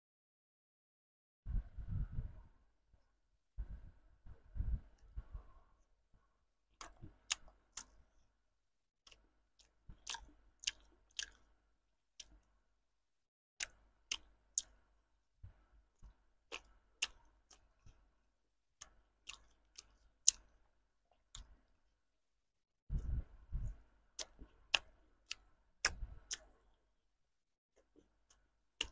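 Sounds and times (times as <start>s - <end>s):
wet mouth chewing smacks: 9.1s - 11.5s, 16.0s - 18.0s, 18.8s - 20.5s.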